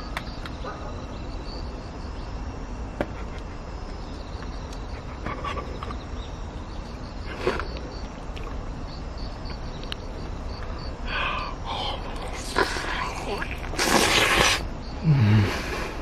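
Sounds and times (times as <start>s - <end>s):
muffled vocal noises: 11.1s - 16.0s
man eating: 11.8s - 16.0s.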